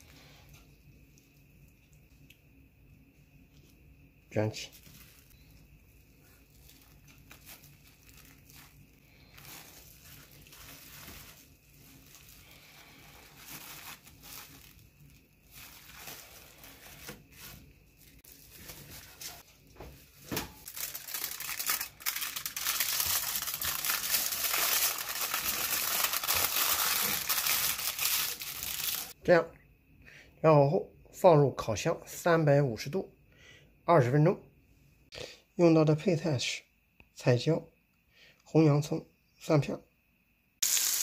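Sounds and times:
aluminium foil crinkling: 0:04.6 - 0:29.2, 0:40.6 - 0:41.0
cling film and mat rustling: 0:04.7 - 0:29.2.

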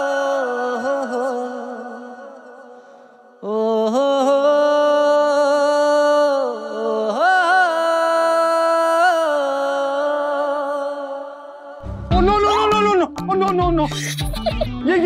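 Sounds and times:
wordless vocal singing: 0:00.0 - 0:12.8.

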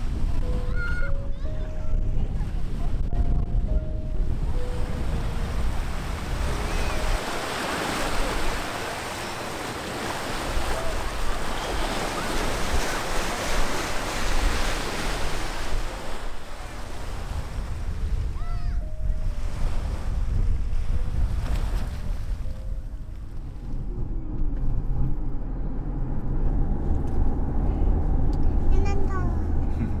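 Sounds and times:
wind buffeting microphone: 0:00.0 - 0:30.0
waves washing on shore: 0:04.6 - 0:18.3.

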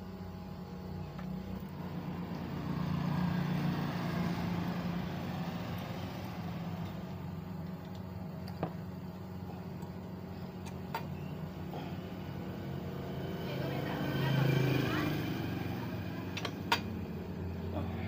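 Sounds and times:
steady low hum: 0:00.0 - 0:18.0
vehicle engine passing: 0:01.5 - 0:07.4, 0:11.5 - 0:18.0.

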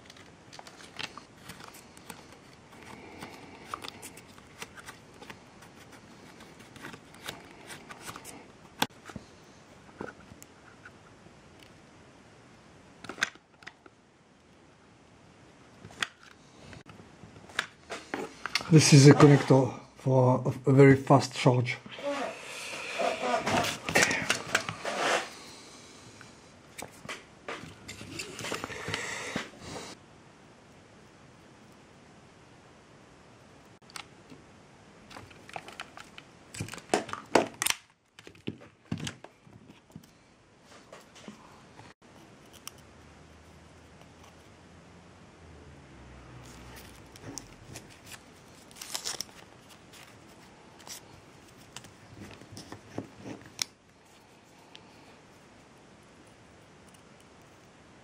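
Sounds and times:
handling rustles: 0:46.4 - 0:57.7.

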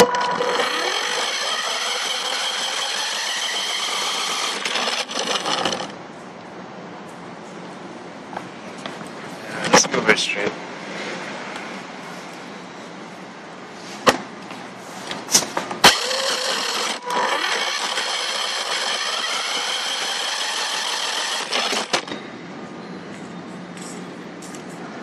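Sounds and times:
electric motor whining: 0:00.0 - 0:06.0, 0:15.8 - 0:22.1.

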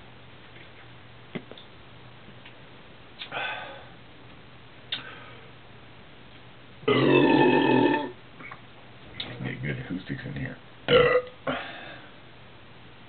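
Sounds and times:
man burping: 0:06.9 - 0:08.2, 0:10.9 - 0:12.0.

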